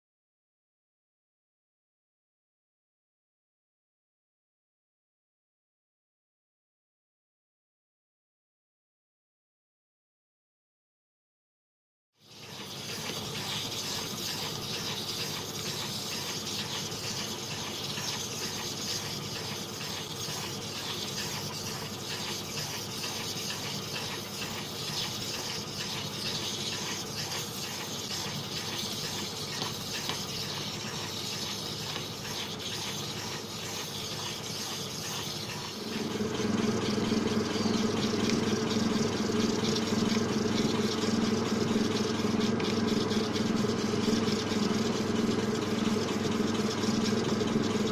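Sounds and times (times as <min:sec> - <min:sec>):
gritty hiss of stone grinding: 0:12.2 - 0:36.1
motor hum: 0:12.3 - 0:47.9.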